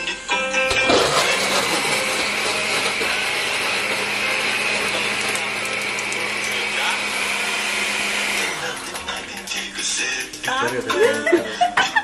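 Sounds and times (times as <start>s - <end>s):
blender motor whirring: 0.7s - 9.6s.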